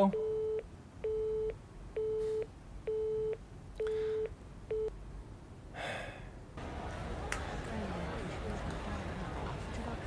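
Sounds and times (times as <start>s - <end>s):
telephone busy tone beeps: 0.1s - 3.4s, 4.1s - 4.9s.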